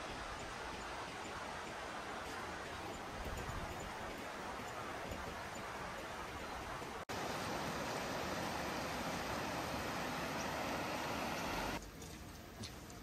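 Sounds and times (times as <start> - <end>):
river rushing over stones: 7.1 - 11.8.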